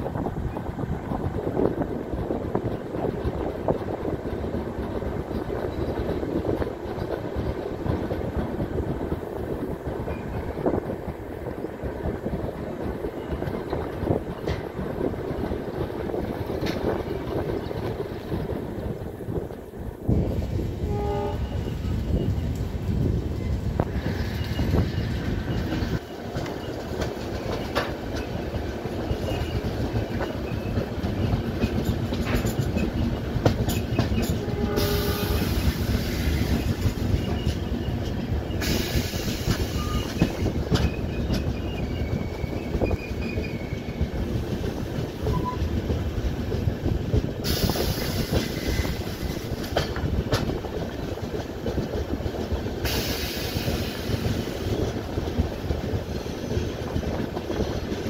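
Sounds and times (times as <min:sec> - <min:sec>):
train rumbling on track: 0:00.0 - 0:58.0
wheels clacking over rail joints: 0:00.3 - 0:19.7, 0:20.5 - 0:58.0
train hiss: 0:33.8 - 0:37.4, 0:38.0 - 0:40.9, 0:47.2 - 0:50.6, 0:52.8 - 0:55.0.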